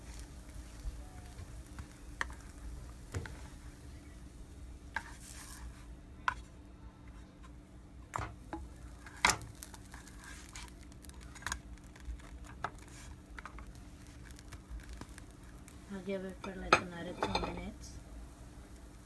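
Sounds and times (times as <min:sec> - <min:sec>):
faint steady hum: 0:00.0 - 0:19.0
spatula scraping frying pan: 0:04.9 - 0:05.8.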